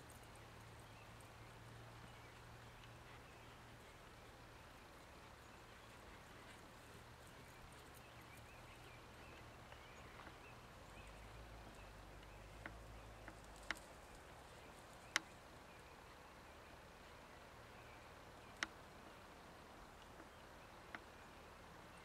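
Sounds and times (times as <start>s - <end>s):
soft scattered chirps: 0.0s - 22.0s
sharp clicks: 12.2s - 14.2s.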